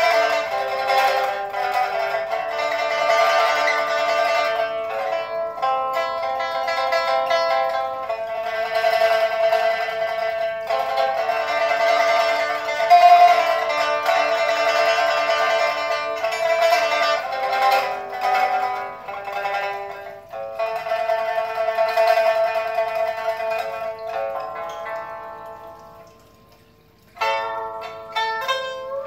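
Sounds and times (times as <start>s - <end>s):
plucked lute melody: 0.0s - 29.0s.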